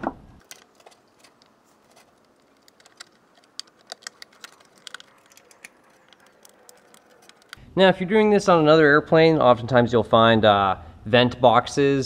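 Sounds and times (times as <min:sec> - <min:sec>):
small metal clicks and taps: 0:00.4 - 0:07.6.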